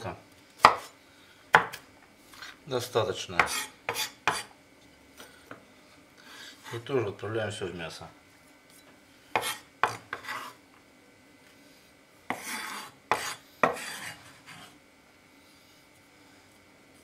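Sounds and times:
knife scraping on wooden board: 0:03.4 - 0:04.5, 0:09.4 - 0:10.6, 0:12.3 - 0:14.8.

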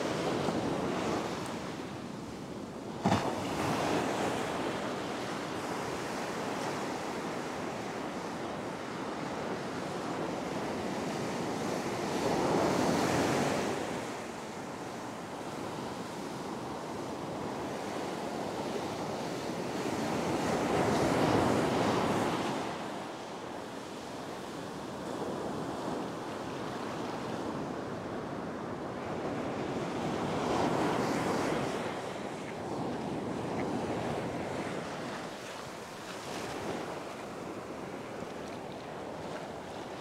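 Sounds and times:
ocean surf washing: 0:00.0 - 0:40.0
waves crashing: 0:30.1 - 0:40.0.

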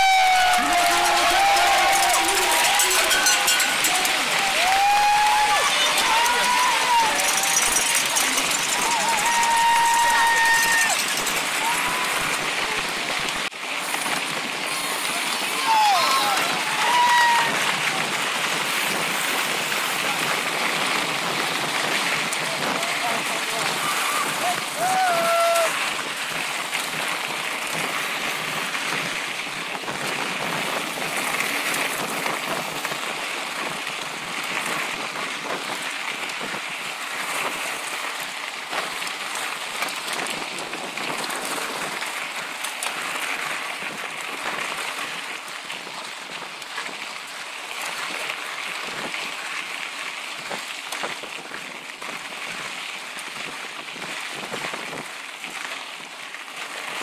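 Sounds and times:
tyres crackling on gravel: 0:00.0 - 0:15.4
bike rattling clicks: 0:00.4 - 0:11.6.

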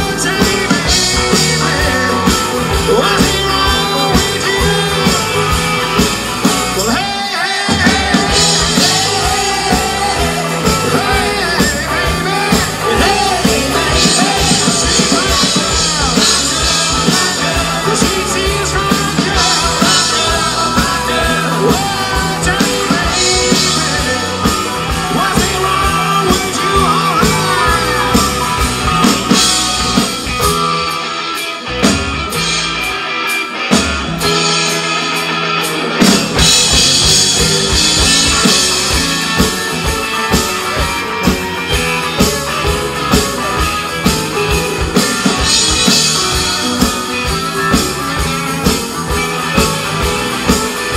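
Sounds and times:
man singing lead vocal: 0:00.0 - 0:30.2
live rock band playing: 0:00.0 - 0:50.9.

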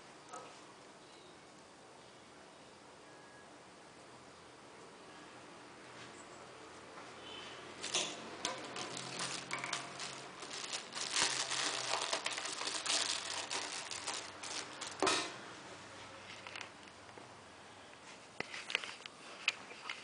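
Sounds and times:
rustling and crinkling: 0:07.8 - 0:17.2, 0:18.0 - 0:20.0.

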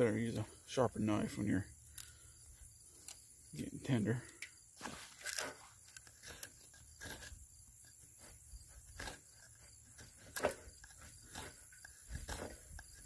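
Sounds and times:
knife scraping wooden board: 0:04.8 - 0:13.0.

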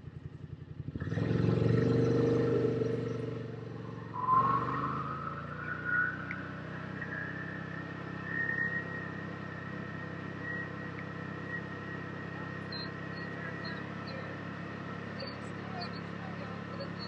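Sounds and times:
utv engine accelerating: 0:00.0 - 0:17.0
rising whine: 0:03.6 - 0:15.5.

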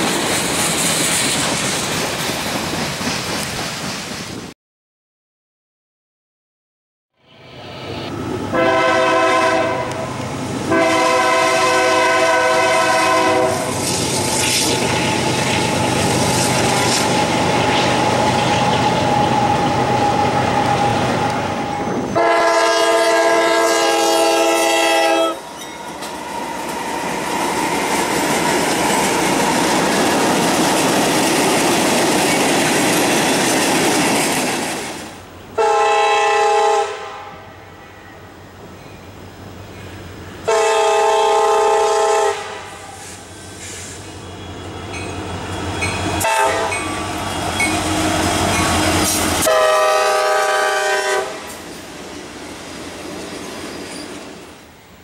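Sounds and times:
train rushing over rails: 0:00.0 - 0:04.6, 0:07.2 - 0:55.0
train horn blasts: 0:08.5 - 0:14.3, 0:17.9 - 0:29.5, 0:35.6 - 0:38.3, 0:40.4 - 0:43.2, 0:46.2 - 0:51.5.

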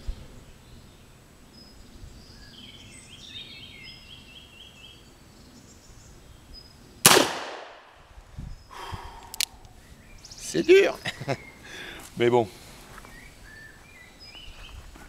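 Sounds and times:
revolver shot with echo: 0:07.1 - 0:07.9.

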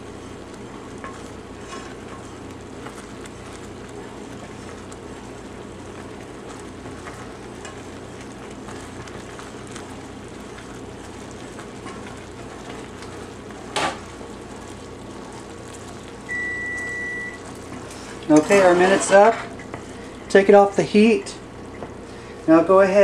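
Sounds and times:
mixture boiling and bubbling: 0:00.0 - 0:23.0
wooden spoon scraping saucepan: 0:01.0 - 0:04.8, 0:17.7 - 0:19.5.

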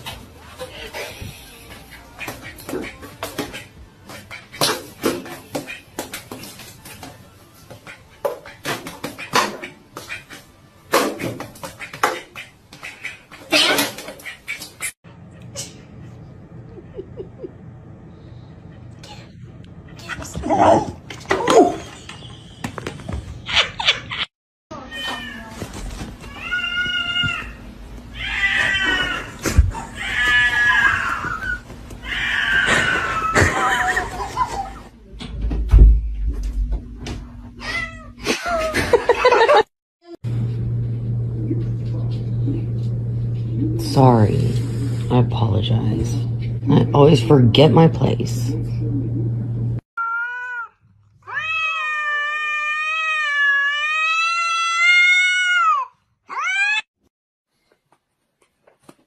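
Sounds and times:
cat meowing loudly: 0:50.0 - 0:56.9.

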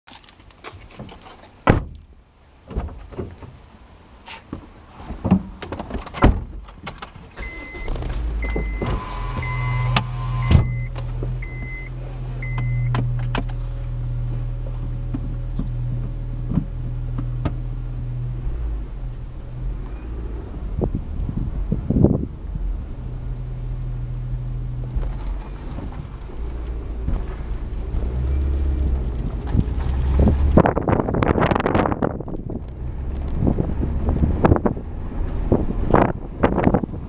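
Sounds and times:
car engine cranking and idling: 0:05.4 - 0:37.0
dashboard chime beeping: 0:07.4 - 0:12.9.

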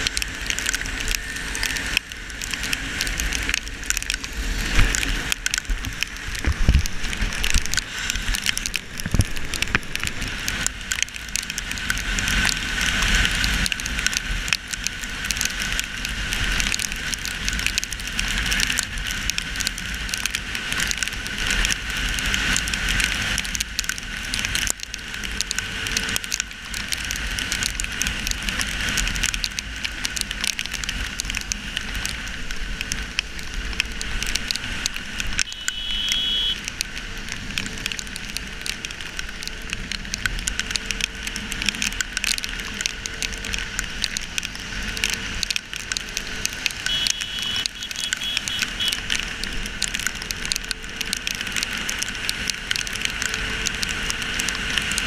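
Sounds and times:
heavy rain pattering on camera housing: 0:00.0 - 0:55.0
wind and wet road hiss: 0:00.0 - 0:55.0.

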